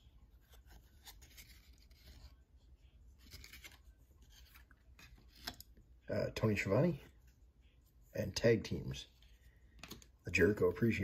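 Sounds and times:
cards rustling: 0.0s - 5.8s.

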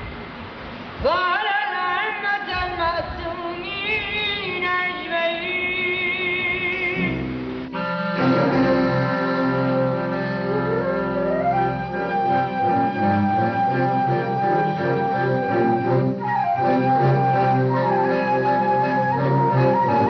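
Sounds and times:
instrumental accompaniment: 6.5s - 20.0s.

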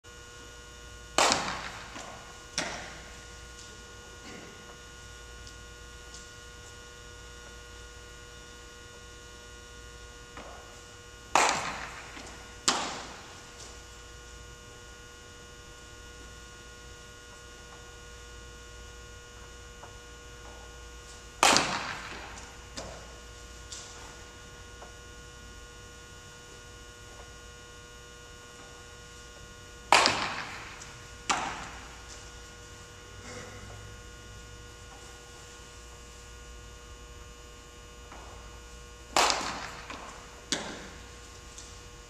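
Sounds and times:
electrical hum: 0.0s - 42.0s
bat cracking baseball: 1.1s - 3.1s, 11.3s - 13.4s, 21.4s - 23.2s, 29.8s - 32.5s, 38.1s - 41.2s
ball smacking into glove: 1.2s - 3.0s, 11.3s - 13.2s, 29.9s - 31.8s, 39.1s - 41.0s.

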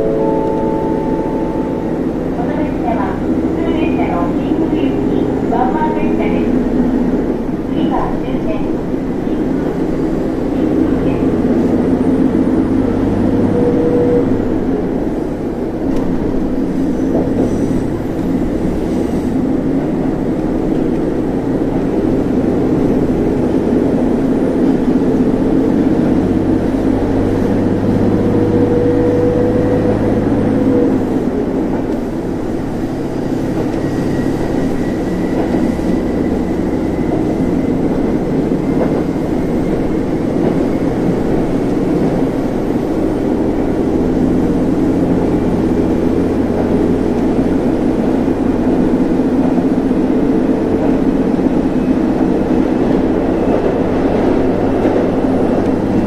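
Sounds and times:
humming tone: 0.0s - 2.8s
diesel engine droning: 0.0s - 56.0s
train wheels rumbling on rail: 0.0s - 56.0s.

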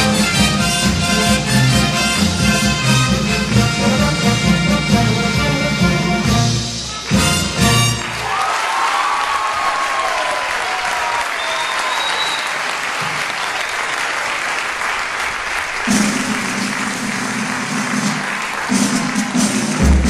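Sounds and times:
audience applauding: 6.9s - 20.0s.

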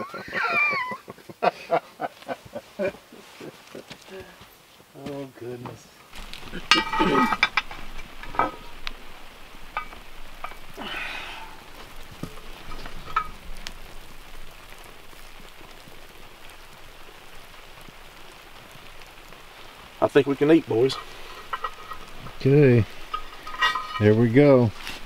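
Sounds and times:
batter sizzling in a pot: 6.1s - 25.0s.

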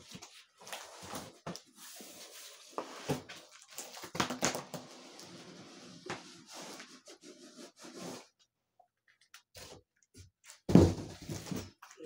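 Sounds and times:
cardboard scraping and rubbing: 4.8s - 8.4s
heavy thump of box set down: 10.7s - 11.7s.

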